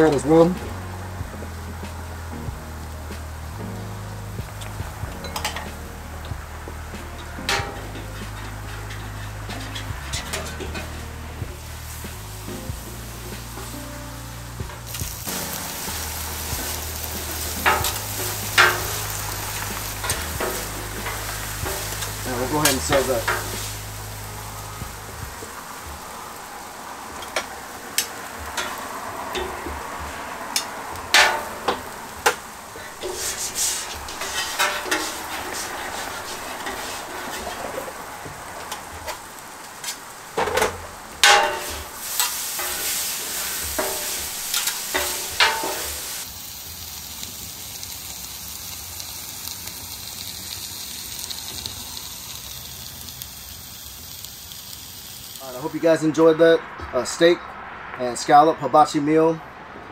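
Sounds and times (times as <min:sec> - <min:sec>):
food sizzling on griddle: 0:00.0 - 0:57.2
spatula scraping steel plate: 0:07.1 - 0:11.3, 0:30.6 - 0:38.0.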